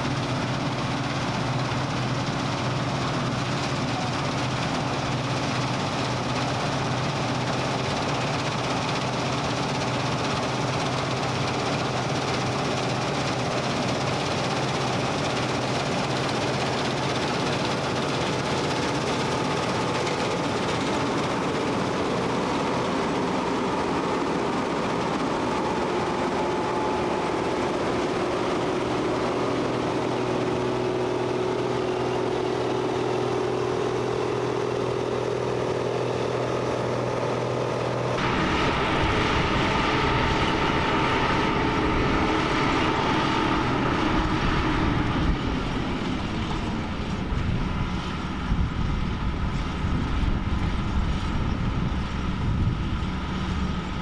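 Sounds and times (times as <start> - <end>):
combine harvester running: 0.0 - 54.0
low noise: 20.0 - 54.0.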